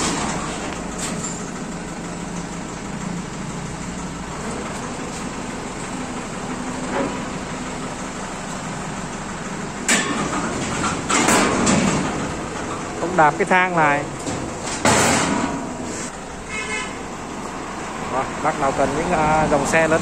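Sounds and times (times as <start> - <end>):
tractor diesel engine running: 0.0 - 20.0.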